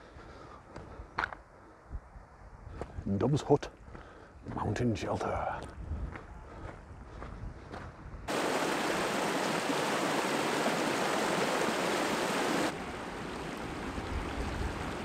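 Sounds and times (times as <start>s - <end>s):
mountain stream rushing over boulders: 8.3s - 15.0s.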